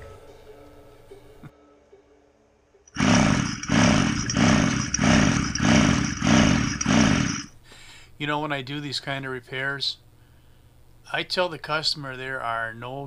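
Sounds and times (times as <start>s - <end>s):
recoil starter pulls whooshing: 3.0s - 7.5s
water and air blowing out: 3.0s - 7.5s.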